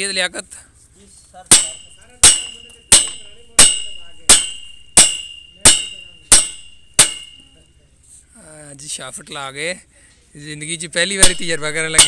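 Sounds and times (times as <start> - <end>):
hammer striking steel: 1.5 - 7.6, 11.2 - 12.0.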